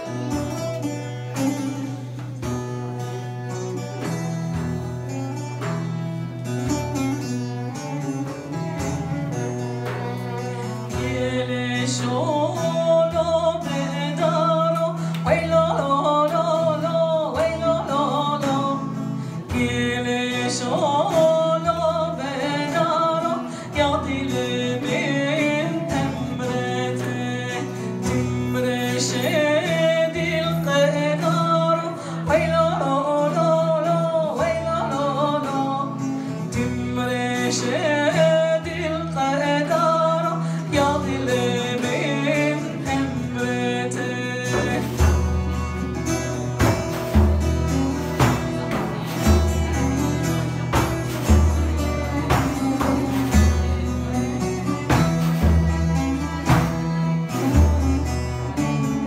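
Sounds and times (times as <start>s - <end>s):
plucked oud: 0.0s - 59.0s
woman singing: 10.9s - 45.1s
frame drum beat: 44.5s - 58.6s.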